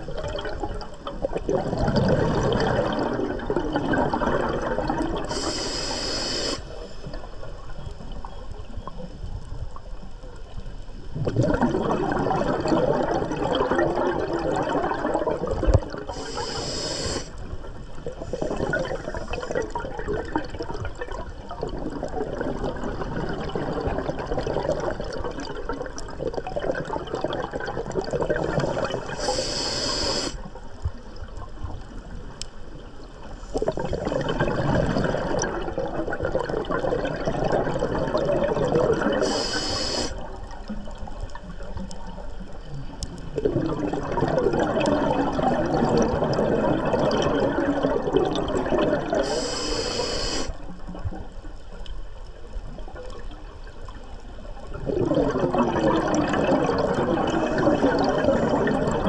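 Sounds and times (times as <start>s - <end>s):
exhaust bubbles underwater: 0.0s - 9.7s, 10.6s - 59.0s
regulator inhale hiss: 5.3s - 7.2s, 16.1s - 17.5s, 29.0s - 30.5s, 39.2s - 40.2s, 49.2s - 50.6s.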